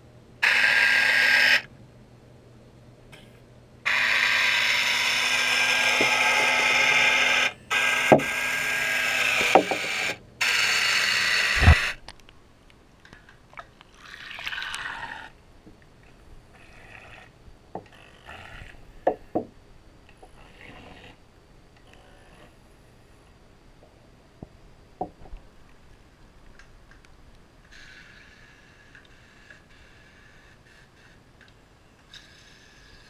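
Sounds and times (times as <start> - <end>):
small electric motor running: 0.4 - 1.7, 3.9 - 12.0
water noise: 13.5 - 15.3.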